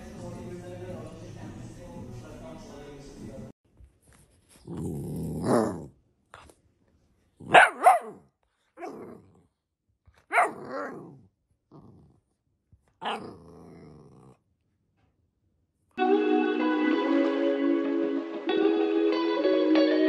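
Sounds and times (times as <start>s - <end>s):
puppy growling: 4.6s - 6.5s, 8.8s - 9.6s, 10.3s - 12.4s, 13.0s - 14.5s
puppy barking: 7.4s - 9.2s, 10.2s - 11.2s, 13.0s - 13.4s.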